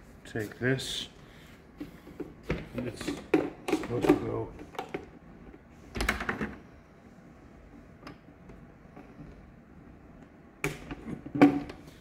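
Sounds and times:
plastic knocks and rattles: 10.6s - 11.8s.

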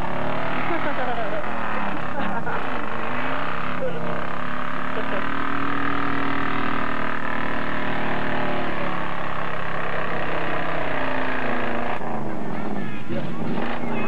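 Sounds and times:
truck engine revving hard: 0.0s - 14.0s.

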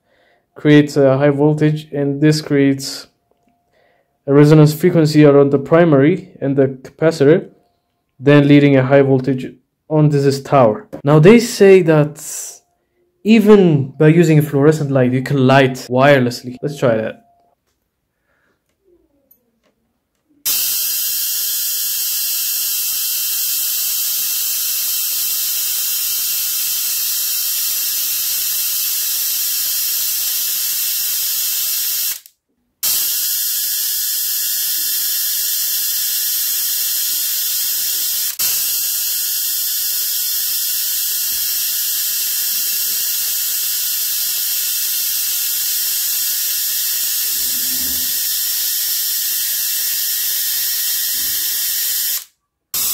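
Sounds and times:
tesla coil buzzing: 20.4s - 52.9s.

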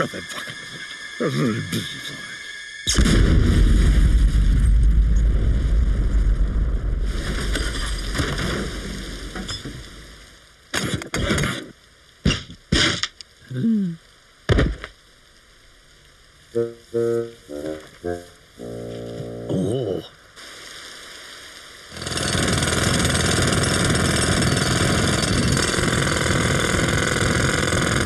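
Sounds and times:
cartoon explosion blast: 2.9s - 7.4s.

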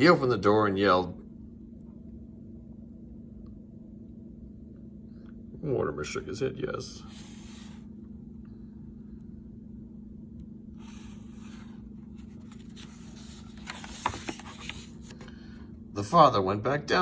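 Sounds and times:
steady low hum: 0.0s - 17.0s
paper pages rustling: 10.8s - 15.3s
sharp paper clicks and scrapes: 12.2s - 15.3s.

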